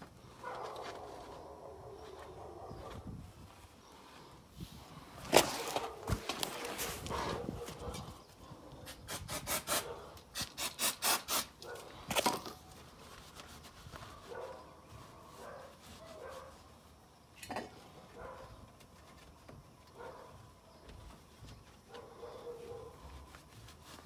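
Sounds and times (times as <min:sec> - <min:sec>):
aerosol can spraying: 0:09.2 - 0:11.6
cloth wiping: 0:12.8 - 0:17.1, 0:21.1 - 0:24.0.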